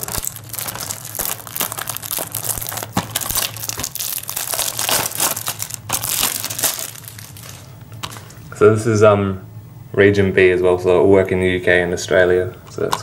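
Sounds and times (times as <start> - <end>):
shrink wrap crinkling and tearing: 0.0 - 8.4.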